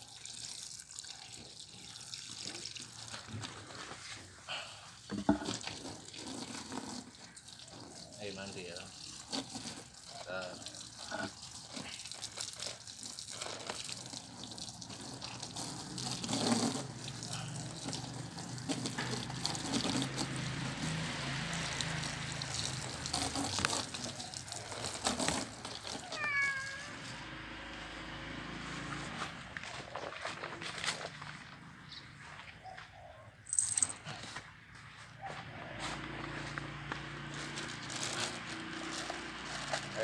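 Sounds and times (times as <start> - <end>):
hose water spraying: 0.0 - 31.6, 35.7 - 40.0
cat meowing: 25.9 - 27.2.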